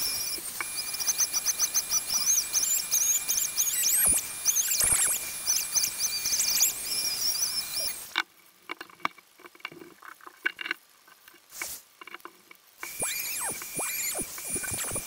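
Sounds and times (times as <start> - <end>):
power tool whining: 0.0 - 8.1, 12.8 - 15.0
short hiss: 11.5 - 11.9.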